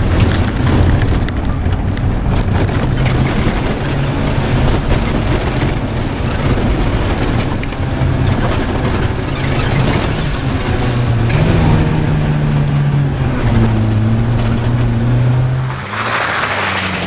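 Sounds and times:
knocks and rattles: 0.0s - 12.8s
car engine running: 0.0s - 17.0s
road noise: 0.0s - 17.0s.

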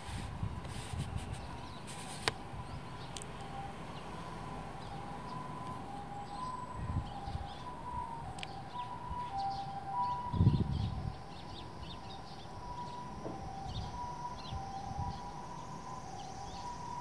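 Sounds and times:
faint two-tone siren: 0.5s - 17.0s
sparrows chirping: 1.2s - 17.0s.

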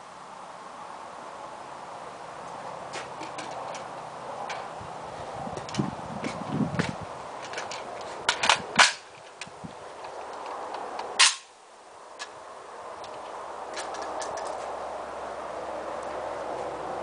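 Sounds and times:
pistol action metallic clacks: 11.2s - 11.5s.

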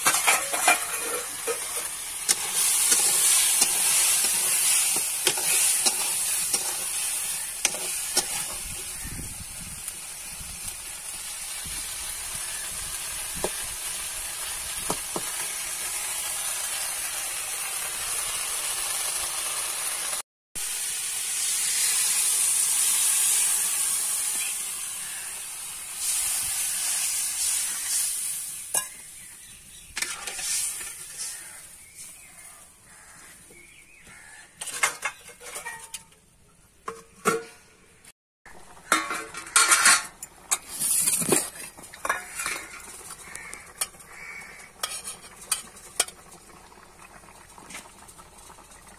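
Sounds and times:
metal spatula scraping pan: 0.0s - 9.1s, 29.9s - 32.2s, 34.5s - 36.2s, 38.8s - 46.2s
potatoes sizzling in pan: 0.0s - 34.4s, 38.5s - 48.9s.

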